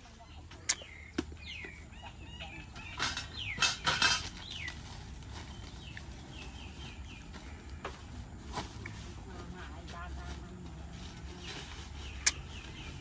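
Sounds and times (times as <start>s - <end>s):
rustling: 3.1s - 13.0s.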